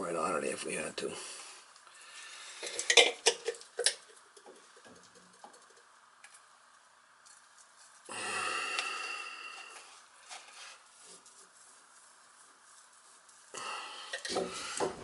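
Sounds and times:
plastic pipe fitting scraping: 14.0s - 15.0s.

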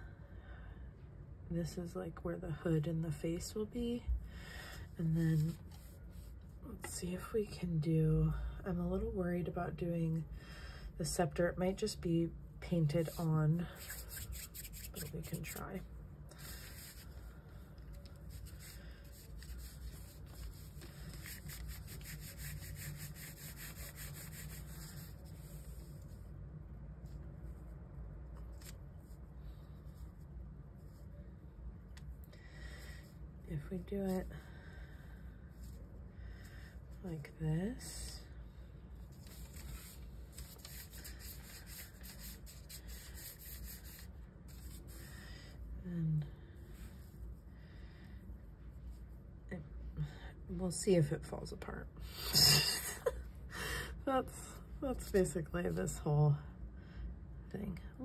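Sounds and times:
clay rubbing on paper: 4.8s - 6.9s, 12.8s - 26.4s, 28.5s - 31.2s, 32.0s - 35.9s, 38.9s - 45.4s, 46.6s - 47.4s.

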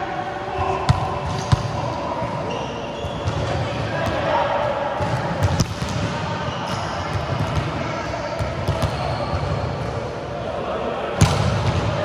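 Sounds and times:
busy sports hall background: 0.0s - 12.0s
volleyballs bouncing and struck: 0.9s - 1.8s, 5.0s - 7.8s, 8.4s - 9.8s, 11.2s - 12.0s.

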